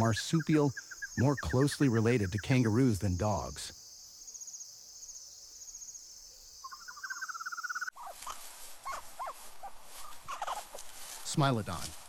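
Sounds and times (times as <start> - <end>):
insects chirping: 0.0 - 11.8
big cat cubs squeaking: 6.7 - 10.7.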